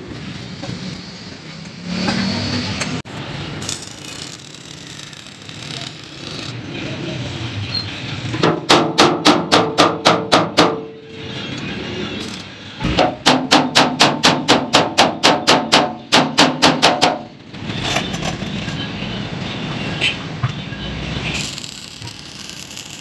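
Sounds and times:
hammer striking metal drum: 0:08.4 - 0:10.9, 0:12.8 - 0:17.3
arc welding hiss: 0:21.4 - 0:23.0.

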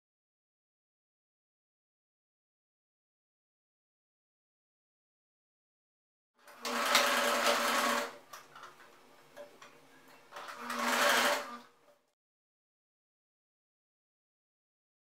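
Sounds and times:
sewing machine stitching: 0:06.4 - 0:08.7, 0:10.3 - 0:11.7.

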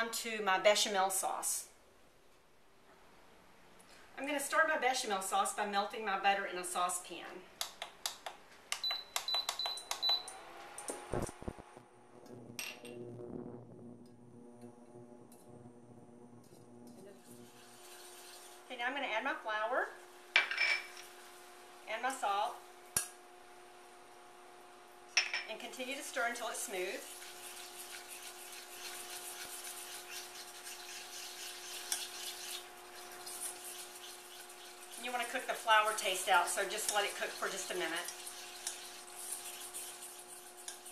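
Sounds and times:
faint steady hum: 0:00.0 - 0:40.9
whisk scraping in metal saucepan: 0:17.2 - 0:18.7, 0:26.6 - 0:40.9.

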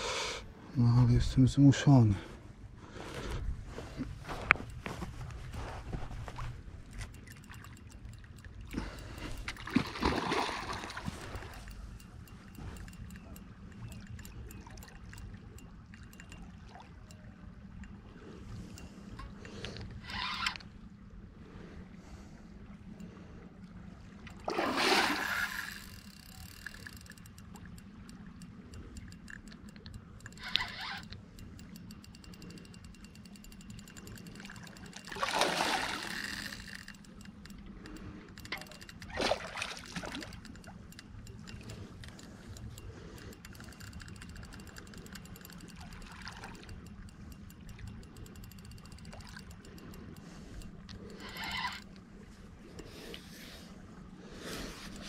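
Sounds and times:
steady low hum: 0:00.0 - 0:55.0
fish splashing at water surface: 0:08.8 - 0:11.7, 0:24.3 - 0:26.9, 0:35.0 - 0:36.9, 0:38.1 - 0:40.5.

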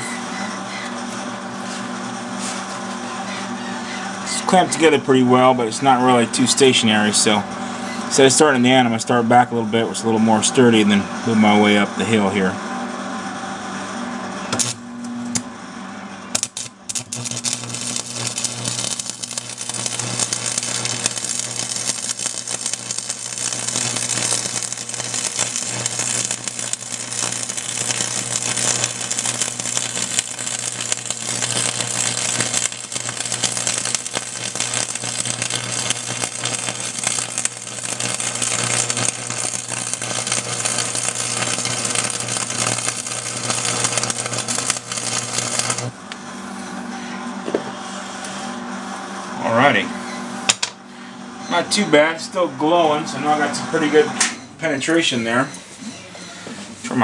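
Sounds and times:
welder low hum: 0:00.0 - 0:57.0
welding arc crackling: 0:14.5 - 0:15.4, 0:16.3 - 0:46.2
welding arc strikes: 0:14.5 - 0:15.4, 0:16.3 - 0:46.1.

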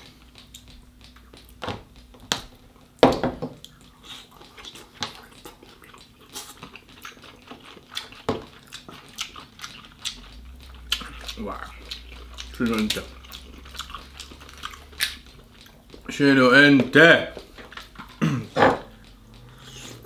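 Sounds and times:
crab meat being chewed: 0:00.0 - 0:20.0
crab shell cracking: 0:03.6 - 0:16.1.

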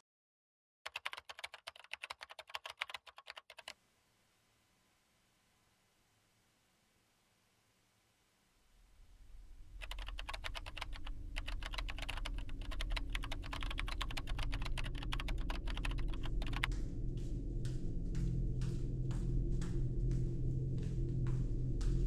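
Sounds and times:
keyboard typing: 0:00.9 - 0:03.8, 0:09.8 - 0:16.8
low drone: 0:13.6 - 0:22.0.

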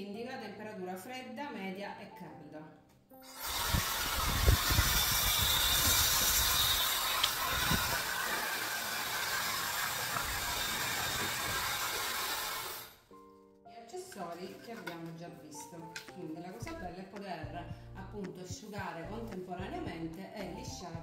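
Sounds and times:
hair dryer blowing air: 0:03.2 - 0:13.0
low buffeting thumps: 0:16.6 - 0:18.2.

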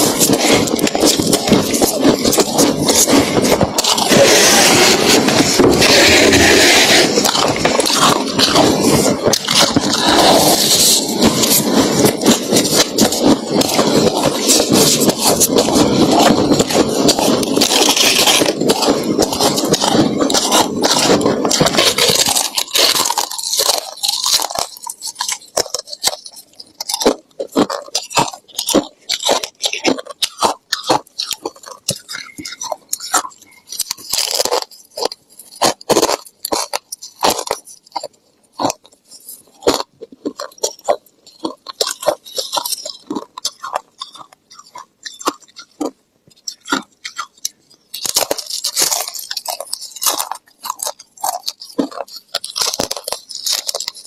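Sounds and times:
gloved hands scooping frost: 0:00.0 - 0:26.8
frost crunching as chewed: 0:00.0 - 0:54.0.

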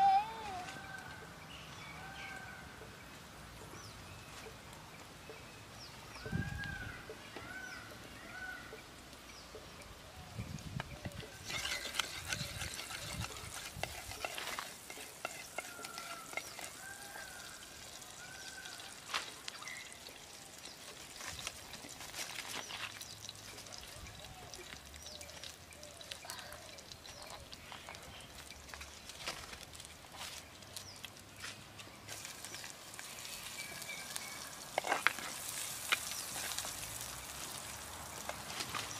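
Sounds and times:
ladle stirring in a pot: 0:11.1 - 0:17.3
oil sizzling in a pot: 0:11.3 - 0:29.1, 0:32.1 - 0:38.9
fire crackling and popping: 0:17.8 - 0:31.4, 0:32.1 - 0:38.9.

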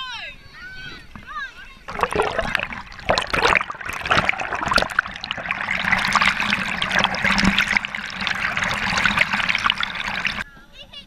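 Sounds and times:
water splashing and gurgling: 0:01.9 - 0:10.4.

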